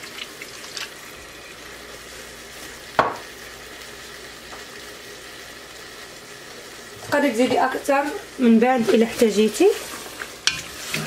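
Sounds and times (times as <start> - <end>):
chicken sizzling in oil: 0.0 - 11.0.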